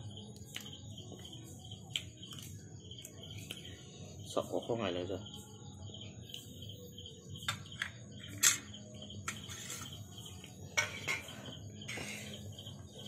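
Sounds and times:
insects chirping: 0.0s - 13.0s
clicks and smacks of eating: 0.3s - 1.2s, 1.8s - 3.7s.

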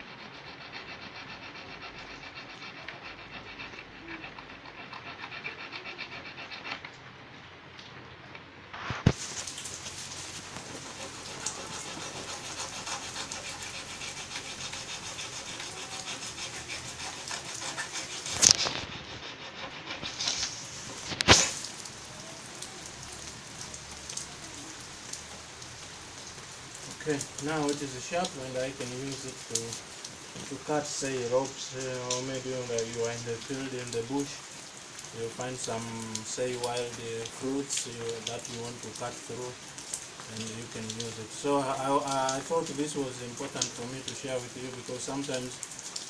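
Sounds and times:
metal file rasping on steel blade: 0.0s - 6.8s, 10.7s - 20.4s.

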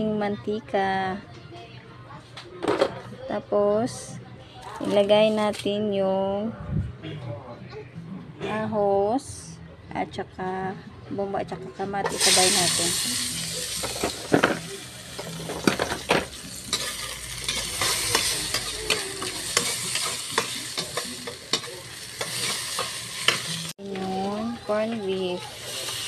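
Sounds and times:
vegetables sizzling in oil: 12.1s - 26.0s
metal spoon scraping pan: 13.8s - 23.6s.

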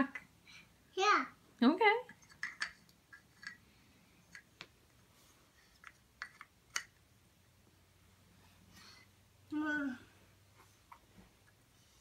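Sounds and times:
wooden toy track pieces clicking: 2.1s - 3.6s, 5.8s - 7.0s.

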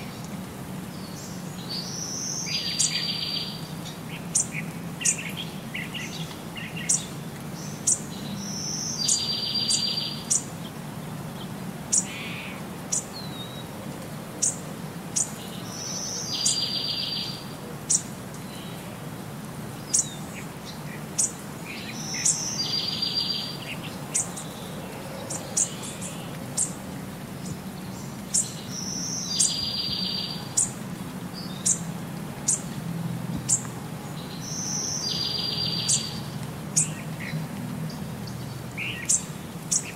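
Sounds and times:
bird chirping: 1.0s - 10.5s, 15.2s - 18.8s, 19.8s - 26.8s, 27.4s - 31.9s, 33.4s - 39.9s.

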